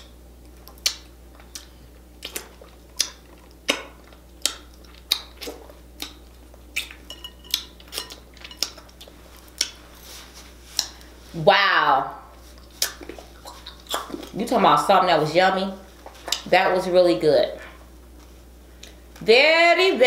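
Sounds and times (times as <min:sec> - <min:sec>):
wet lip smacks: 0:00.7 - 0:07.0, 0:10.8 - 0:11.0, 0:12.6 - 0:14.4.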